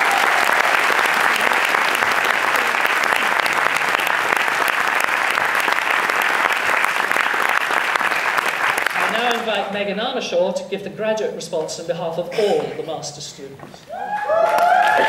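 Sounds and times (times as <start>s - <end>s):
crowd applauding: 0.0s - 9.4s, 13.9s - 15.0s.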